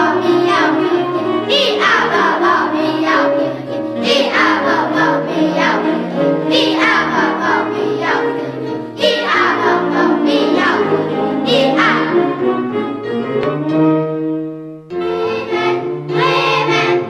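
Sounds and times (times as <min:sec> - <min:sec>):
children singing: 0:00.0 - 0:12.5, 0:14.9 - 0:17.0
instrumental backing: 0:00.0 - 0:17.0.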